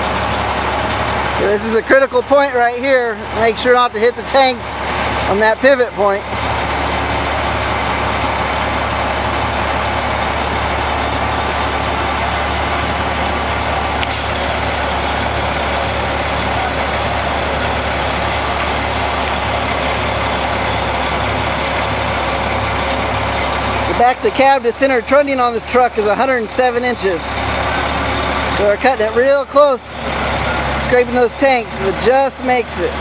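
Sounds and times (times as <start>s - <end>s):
diesel truck engine running: 0.0s - 33.0s
brief air hisses: 14.1s - 14.4s.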